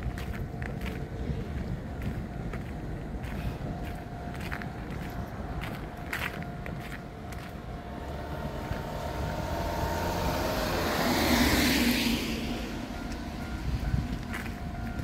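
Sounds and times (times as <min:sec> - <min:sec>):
vehicle passing by: 0:07.8 - 0:14.8.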